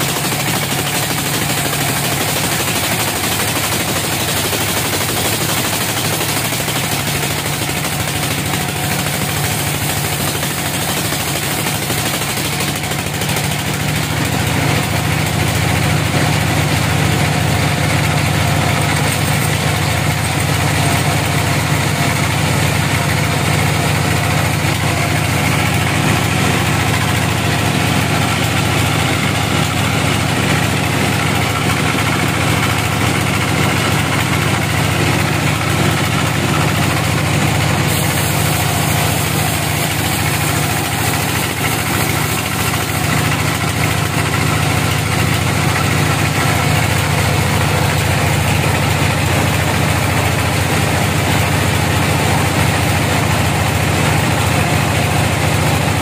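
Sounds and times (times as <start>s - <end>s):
saw blade cutting wood: 0.0s - 15.6s, 35.3s - 51.7s
band sawmill humming: 15.8s - 56.0s.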